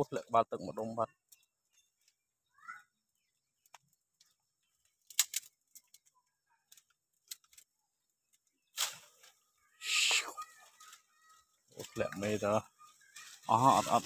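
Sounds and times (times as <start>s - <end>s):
dry twigs snapping: 3.6s - 6.1s, 6.7s - 9.4s.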